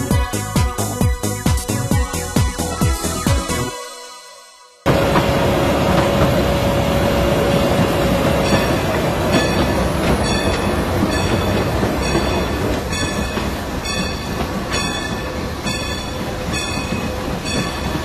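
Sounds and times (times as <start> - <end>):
rail-joint clicks: 4.9 - 18.0
train wheels rumbling on track: 4.9 - 18.0.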